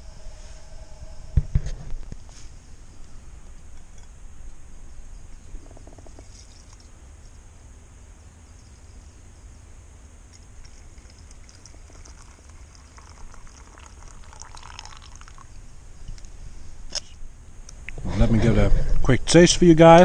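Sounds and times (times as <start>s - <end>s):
coffee pouring into metal mug: 10.6s - 15.6s.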